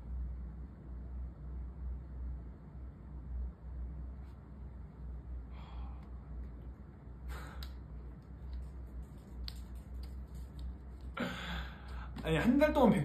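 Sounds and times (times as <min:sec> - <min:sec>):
steady low hum: 0:00.0 - 0:13.0
man exhaling breathily: 0:05.5 - 0:06.2, 0:07.2 - 0:07.8, 0:11.2 - 0:12.2.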